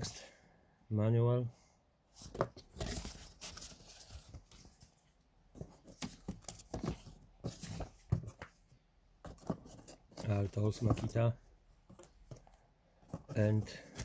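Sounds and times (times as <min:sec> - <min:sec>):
paper rustling and crinkling: 0:02.2 - 0:08.6.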